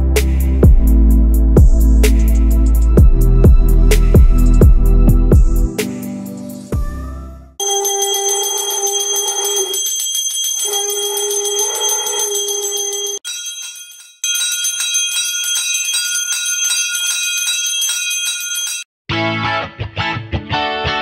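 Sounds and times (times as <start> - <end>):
hand bell ringing rapidly: 7.6 - 18.8
guitar music: 19.1 - 21.0.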